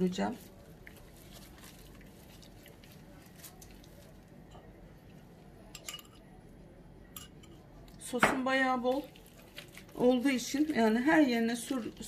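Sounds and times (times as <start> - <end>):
metal spoon clinking ceramic bowl: 5.8 - 6.2.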